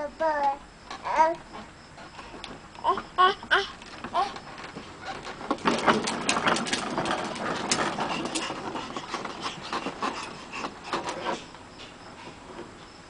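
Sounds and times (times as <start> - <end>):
plastic toy car rolling on concrete: 3.8 - 11.5.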